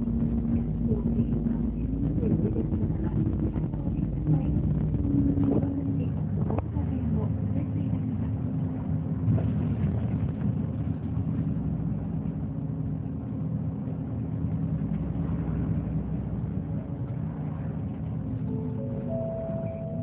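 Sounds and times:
bus diesel engine running: 0.0s - 9.2s, 18.2s - 20.0s.

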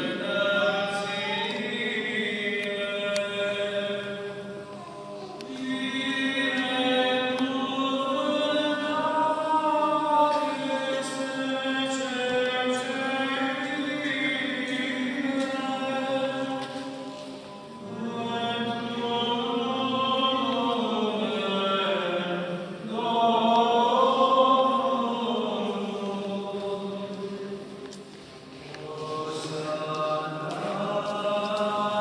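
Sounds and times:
church choir chanting: 0.0s - 27.9s, 28.5s - 32.0s.

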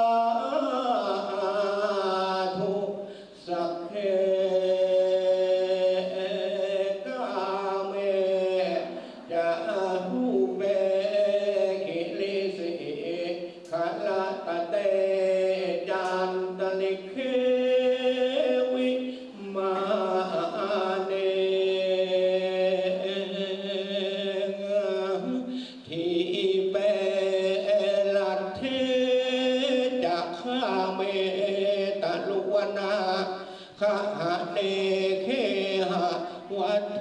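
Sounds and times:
man chanting over loudspeaker: 0.0s - 37.0s
man breathing: 3.0s - 3.4s, 8.9s - 9.3s, 25.5s - 25.9s, 33.4s - 33.8s.

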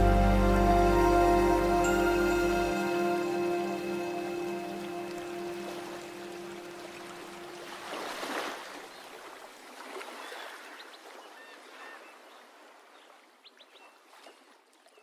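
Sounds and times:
sustained synth notes: 0.0s - 7.8s
hissing water texture: 0.0s - 8.6s.

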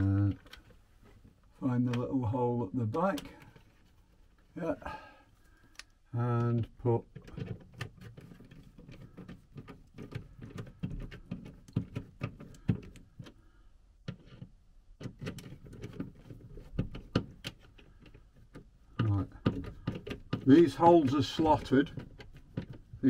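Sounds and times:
screwdriver clicking and scraping: 7.2s - 13.4s, 14.1s - 23.0s.

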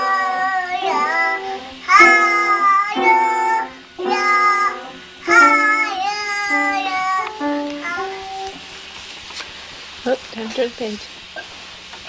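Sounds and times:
child singing: 0.0s - 8.7s.

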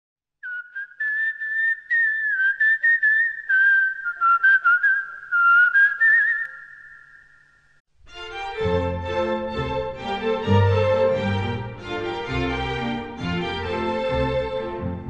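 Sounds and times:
person whistling: 0.4s - 7.6s.

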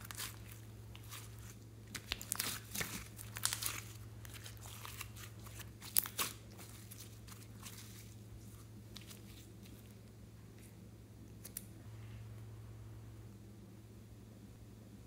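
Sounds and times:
slime crackling and popping: 0.0s - 8.1s.

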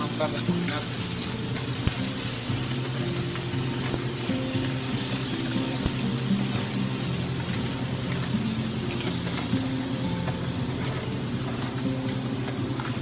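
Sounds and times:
background music: 0.0s - 13.0s
seafood sizzling in a pan: 0.0s - 13.0s.

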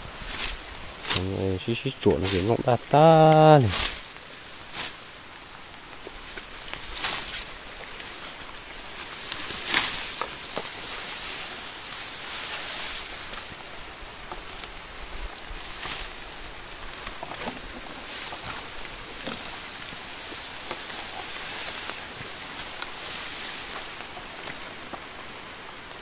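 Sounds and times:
rice leaves rustling and swishing: 0.0s - 26.0s
steady high hiss: 0.0s - 26.0s.

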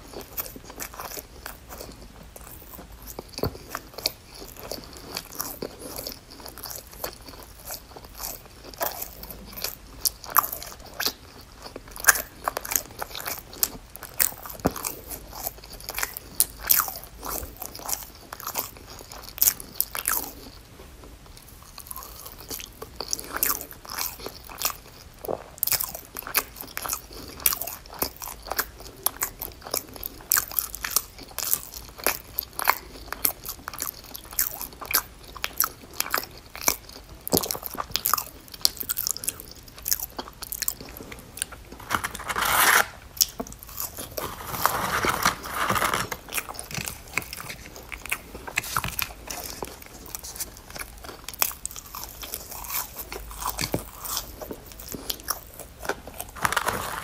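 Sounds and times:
crunchy food chewing: 0.0s - 57.0s.

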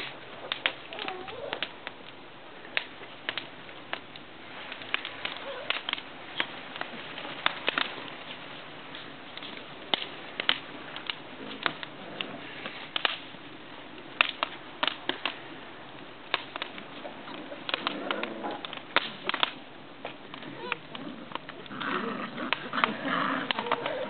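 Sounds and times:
puppy claws clicking on paving: 0.0s - 2.1s, 16.3s - 24.0s.

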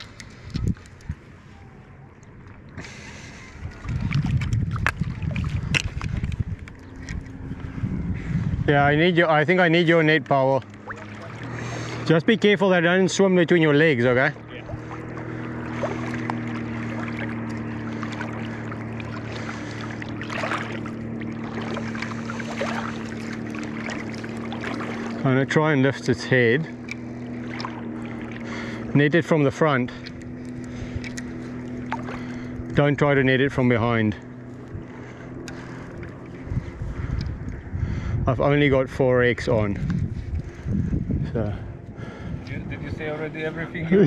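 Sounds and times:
wind buffeting microphone: 0.0s - 12.2s, 29.8s - 44.0s
lake water lapping: 0.0s - 44.0s
steady low hum: 0.0s - 44.0s.

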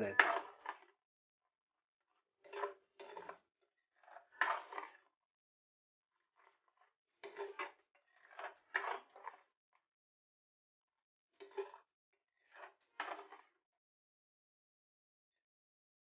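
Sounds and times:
spatula scraping gravy in a pan: 2.2s - 5.2s, 6.2s - 9.6s, 11.4s - 13.6s.

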